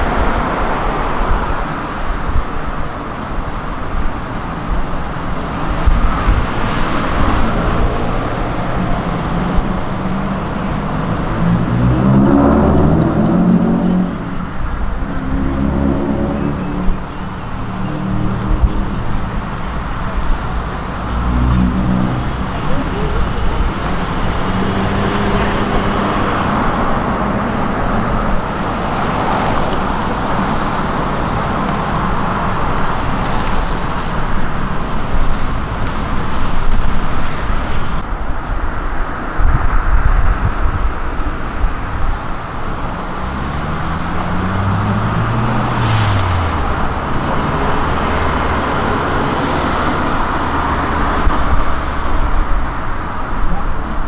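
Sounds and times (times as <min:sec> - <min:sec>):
vehicles passing: 0:00.0 - 0:54.0
engine pitch rising and falling: 0:05.9 - 0:19.3.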